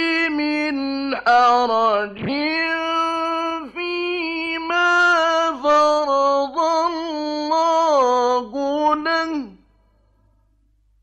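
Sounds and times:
man chanting melodically: 0.0s - 9.6s.

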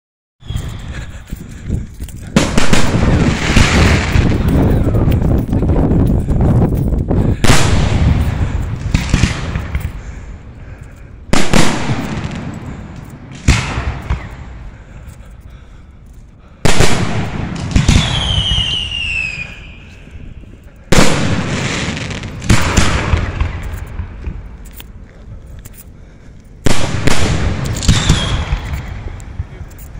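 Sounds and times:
falling firework whistle: 0.4s - 0.9s, 17.6s - 20.0s, 27.6s - 28.9s
fireworks bangs with echo: 2.4s - 5.0s, 7.3s - 10.0s, 11.3s - 14.6s, 16.6s - 19.8s, 20.9s - 24.4s, 26.6s - 29.6s.

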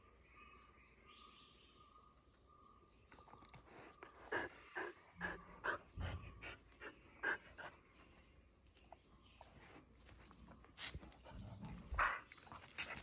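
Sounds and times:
dog panting and huffing: 10.9s - 13.0s.

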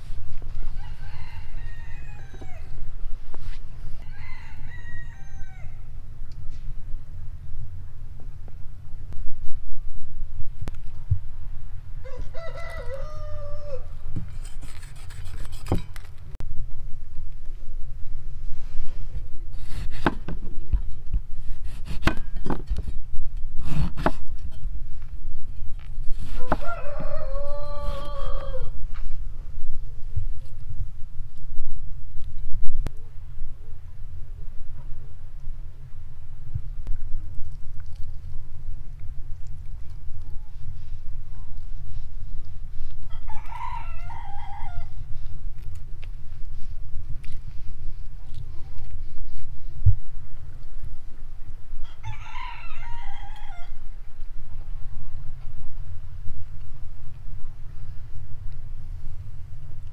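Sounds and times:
rooster crowing: 0.5s - 2.8s, 4.0s - 5.9s, 12.0s - 14.0s, 26.4s - 28.8s, 43.1s - 45.0s, 51.8s - 53.8s
steady low rumble: 5.7s - 19.6s, 28.4s - 59.9s
knife cutting on wooden board: 14.2s - 16.0s, 19.6s - 20.4s, 21.5s - 22.8s, 23.6s - 24.3s.

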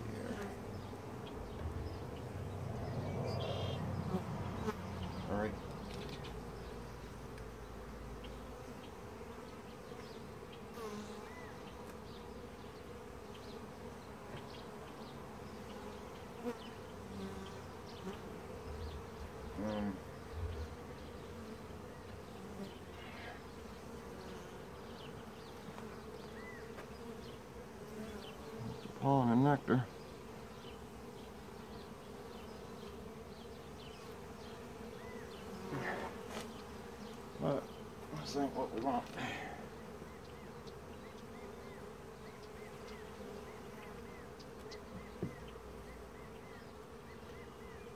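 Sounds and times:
bees buzzing: 0.0s - 47.9s.

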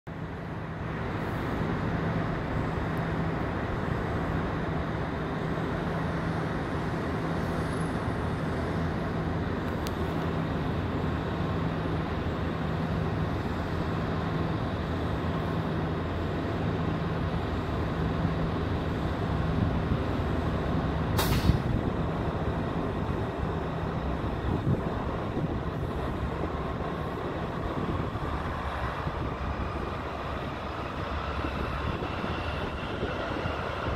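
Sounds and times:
locomotive engine rumble: 0.1s - 33.9s.

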